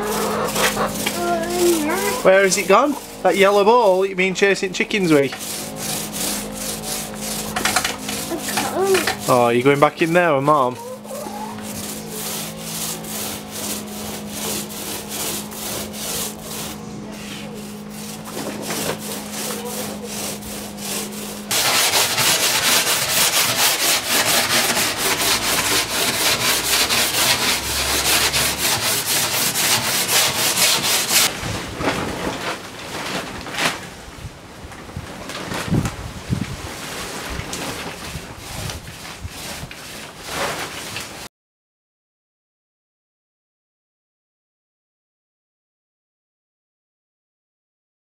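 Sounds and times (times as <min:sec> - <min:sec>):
steady low hum: 0:00.0 - 0:31.1
fast sanding on wood: 0:00.0 - 0:31.3, 0:38.4 - 0:40.6
hand sanding strokes: 0:00.0 - 0:31.3, 0:37.6 - 0:41.3.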